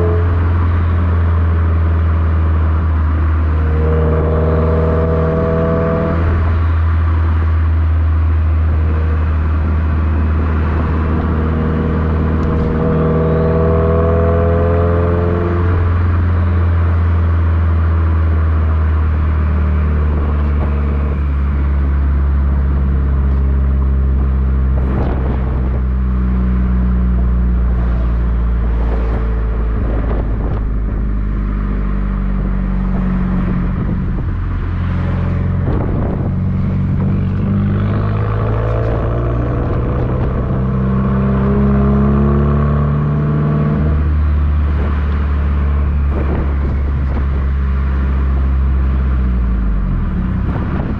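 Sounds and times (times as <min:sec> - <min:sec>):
car exhaust drone: 0:00.0 - 0:50.9.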